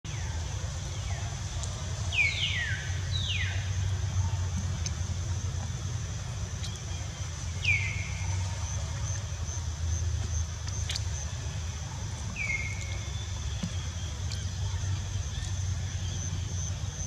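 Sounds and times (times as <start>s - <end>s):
steady low rumble: 0.1s - 17.0s.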